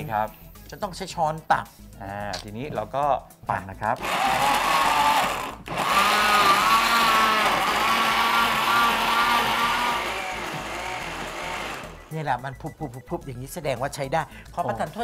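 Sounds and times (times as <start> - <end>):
electric blender running: 4.0 - 12.1.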